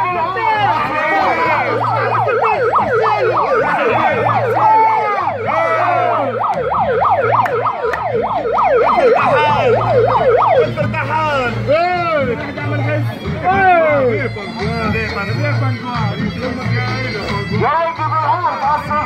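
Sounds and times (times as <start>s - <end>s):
megaphone siren yelp: 0.0s - 11.7s.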